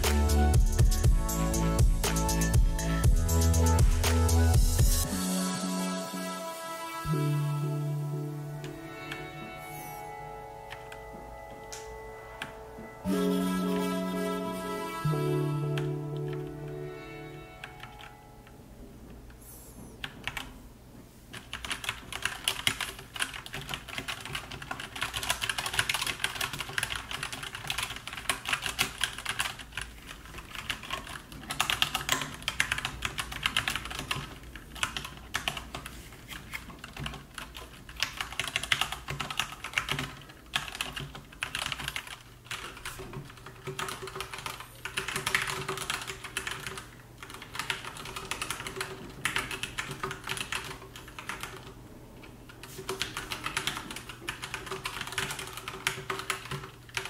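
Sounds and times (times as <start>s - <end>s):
mechanical keyboard typing: 20.0s - 20.5s, 21.3s - 51.8s, 52.6s - 57.0s.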